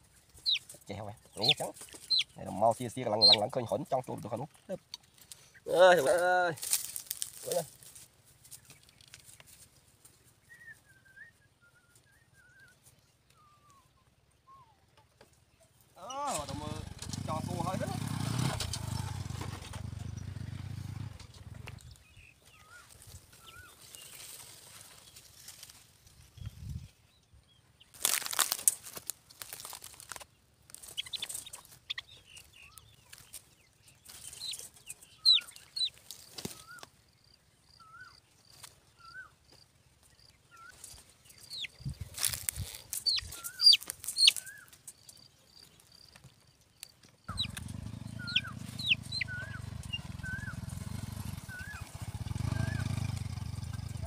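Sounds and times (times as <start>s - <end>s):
birds chirping: 0.0s - 7.7s, 8.4s - 54.0s
motorcycle engine: 16.2s - 25.1s, 34.0s - 36.8s, 47.3s - 54.0s.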